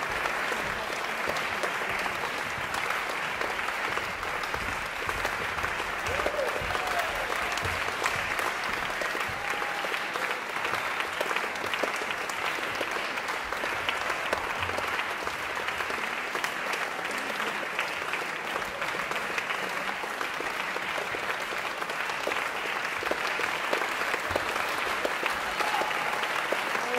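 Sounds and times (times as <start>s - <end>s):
audience applauding: 0.0s - 26.9s.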